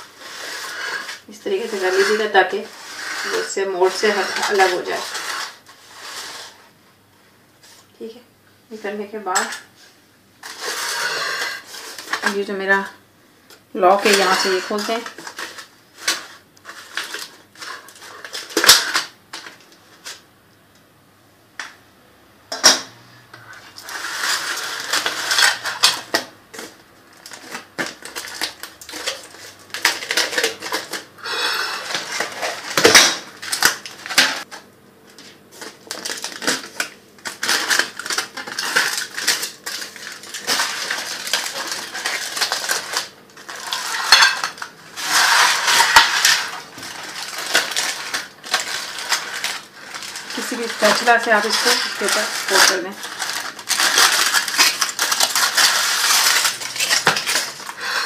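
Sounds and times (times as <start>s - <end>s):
metal pan scraping and rattling: 0.0s - 6.5s, 14.0s - 19.0s, 40.3s - 57.8s.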